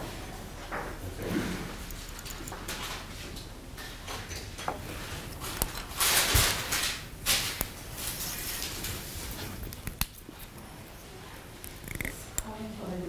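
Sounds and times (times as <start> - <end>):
tweezers clicking on metal: 11.6 - 12.5.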